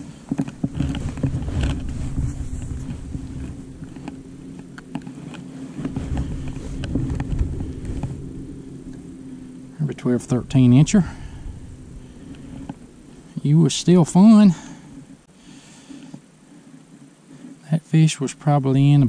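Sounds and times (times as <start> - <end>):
wind rumbling on microphone: 0.0 - 15.3
steady low hum: 0.0 - 19.0.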